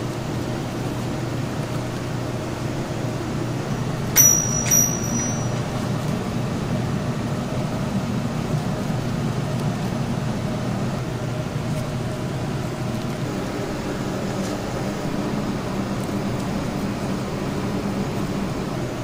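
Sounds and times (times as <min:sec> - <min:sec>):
kitchen machinery hum: 0:00.0 - 0:19.0
ringing metallic clinks: 0:04.2 - 0:05.8.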